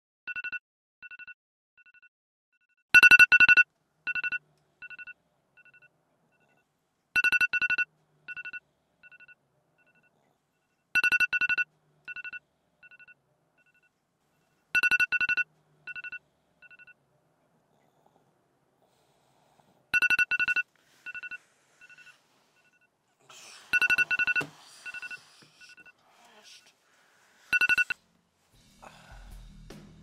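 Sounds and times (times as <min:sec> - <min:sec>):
electronic alarm beeping: 0:03.0 - 0:06.6, 0:07.2 - 0:10.1, 0:11.0 - 0:13.9, 0:14.7 - 0:17.0, 0:20.0 - 0:22.8, 0:23.7 - 0:26.0, 0:27.5 - 0:28.0.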